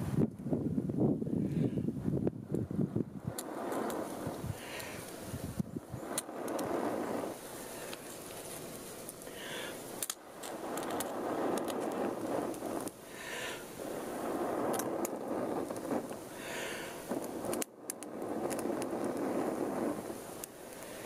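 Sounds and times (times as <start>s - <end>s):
smouldering bark crackling: 2.4s - 21.0s
person blowing long breaths: 4.4s - 5.6s, 6.7s - 8.2s, 9.2s - 10.0s, 12.0s - 14.7s, 16.2s - 17.5s, 20.6s - 21.0s.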